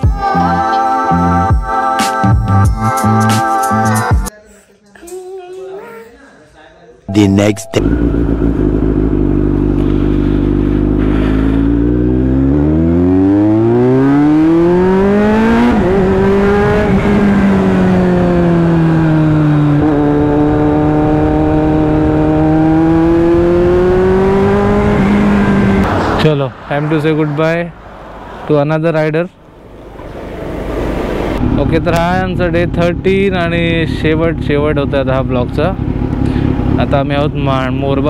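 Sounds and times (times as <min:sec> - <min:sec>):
motorcycle engine accelerating: 0:07.1 - 0:26.2, 0:29.5 - 0:38.0.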